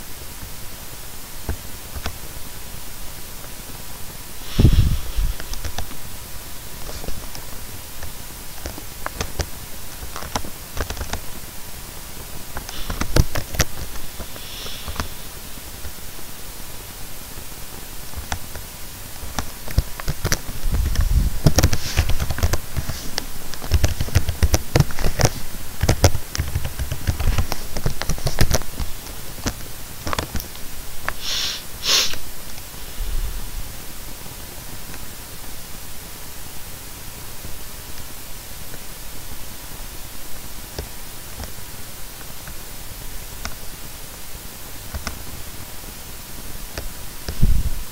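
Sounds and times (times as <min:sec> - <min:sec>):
background hiss: 0:00.0 - 0:47.9.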